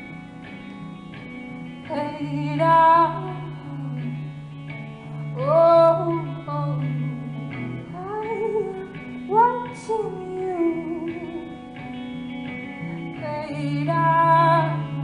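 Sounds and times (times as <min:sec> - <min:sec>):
electric guitar: 0:00.0 - 0:15.0
woman singing: 0:01.8 - 0:11.8, 0:13.1 - 0:15.0.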